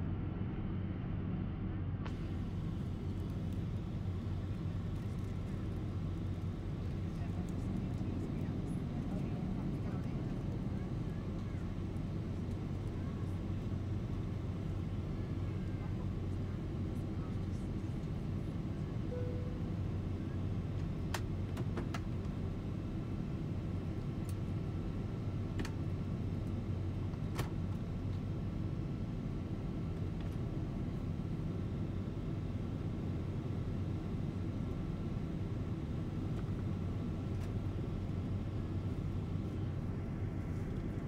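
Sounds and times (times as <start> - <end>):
aircraft cabin engine rumble: 0.0 - 41.0
faint high tone: 19.1 - 19.7.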